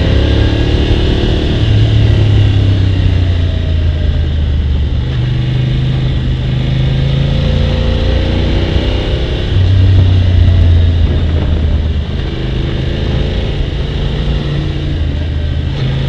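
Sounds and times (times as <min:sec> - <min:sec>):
motorcycle engine running: 0:00.0 - 0:16.0
road noise: 0:00.0 - 0:16.0
wind noise: 0:08.3 - 0:16.0.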